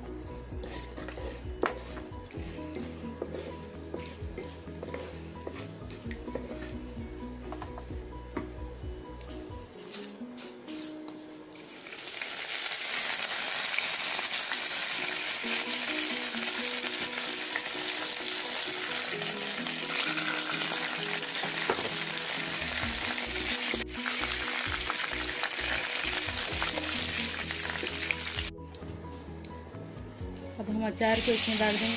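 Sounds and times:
hot oil sizzling loudly: 0:11.6 - 0:28.5, 0:31.1 - 0:31.9.

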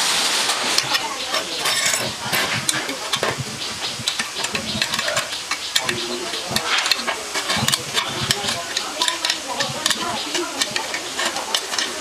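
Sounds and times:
spanner clicking on metal nuts: 0:01.3 - 0:12.0.

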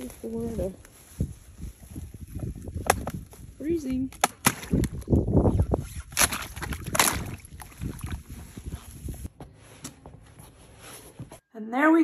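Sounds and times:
ice cracking and crunching: 0:06.1 - 0:08.6.

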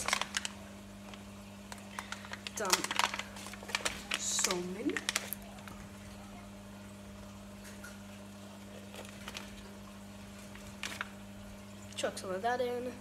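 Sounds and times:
foil packet crinkling: 0:00.0 - 0:05.9, 0:08.7 - 0:11.3
aquarium filter pump hum: 0:00.0 - 0:13.0.

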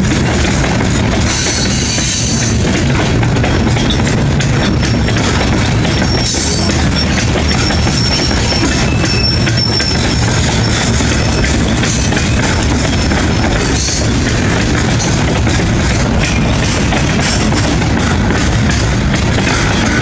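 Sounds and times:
steel wheels rumbling on rail: 0:00.0 - 0:20.0
wheels clicking over rail joints: 0:00.0 - 0:20.0
high wheel squeal: 0:03.7 - 0:18.3.

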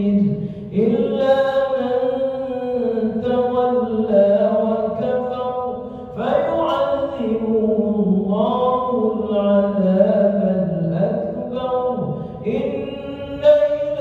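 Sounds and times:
man chanting recitation: 0:00.0 - 0:14.0.

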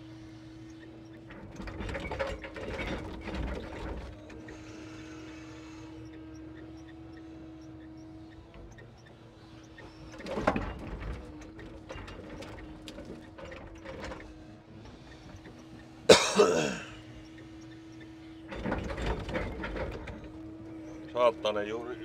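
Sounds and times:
crane hydraulics humming: 0:00.0 - 0:22.0
logs clattering and knocking: 0:18.5 - 0:20.4.

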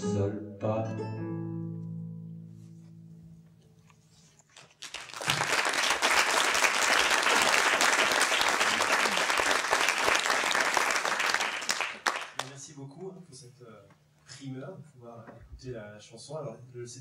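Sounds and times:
audience applauding: 0:04.6 - 0:12.6.

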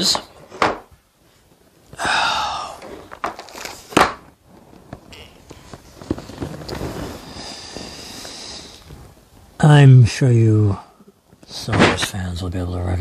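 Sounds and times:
plastic wrap rustling: 0:02.9 - 0:09.5.

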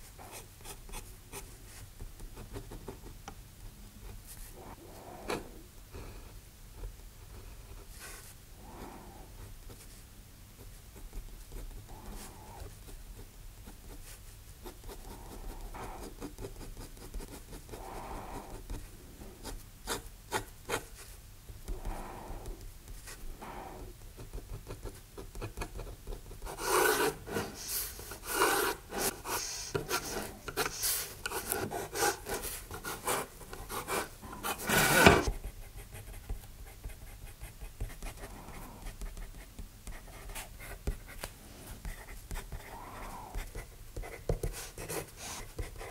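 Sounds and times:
dip pen nib scratching paper: 0:24.2 - 0:41.1.

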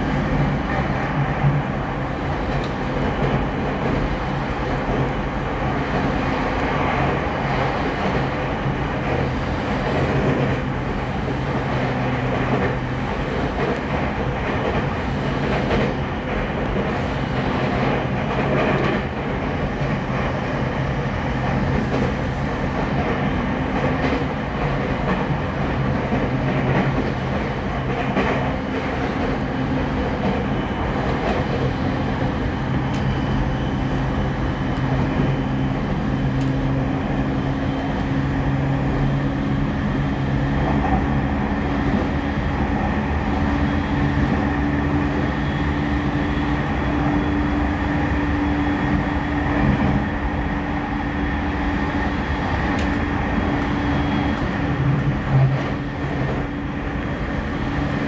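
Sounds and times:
train wheels rumbling on rail: 0:00.0 - 0:58.0
faint rail-joint clicks: 0:02.5 - 0:03.4, 0:32.7 - 0:33.2, 0:35.7 - 0:36.7, 0:52.7 - 0:56.4.

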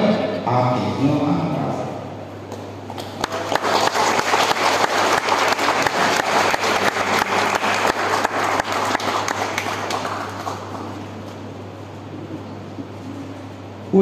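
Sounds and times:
people clapping: 0:02.5 - 0:11.4.

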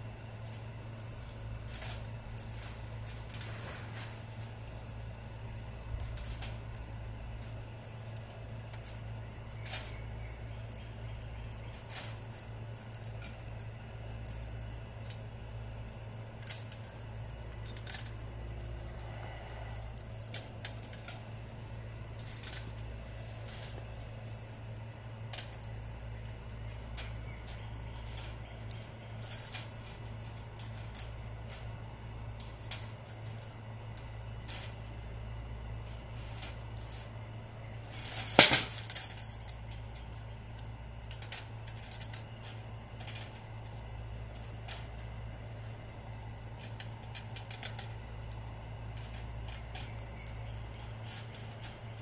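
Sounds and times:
steady low hum: 0:00.0 - 0:52.0
metal screws clinking: 0:00.4 - 0:03.6, 0:08.8 - 0:15.2, 0:15.9 - 0:22.8, 0:25.3 - 0:31.6, 0:32.4 - 0:34.8, 0:36.2 - 0:37.1, 0:37.8 - 0:43.8, 0:44.4 - 0:52.0.

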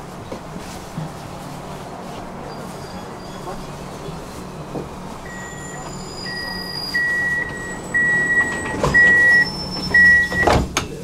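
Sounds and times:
low tram hum: 0:00.0 - 0:11.0
high electronic warning beeps: 0:05.3 - 0:10.6.

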